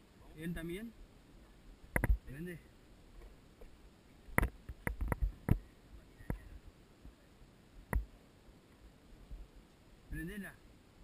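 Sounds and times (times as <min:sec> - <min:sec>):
sharp clicks and knocks: 0:01.9 - 0:02.2, 0:04.3 - 0:05.6.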